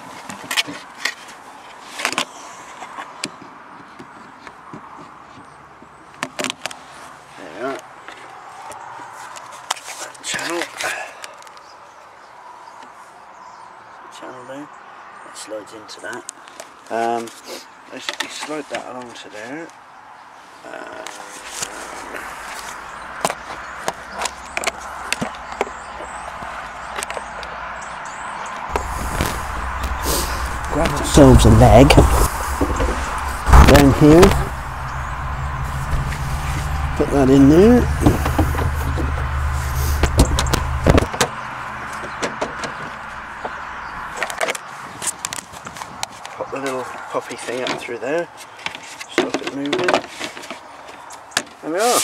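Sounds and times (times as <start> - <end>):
steady hiss: 28.7 - 40.8
low rumble: 28.7 - 42.0.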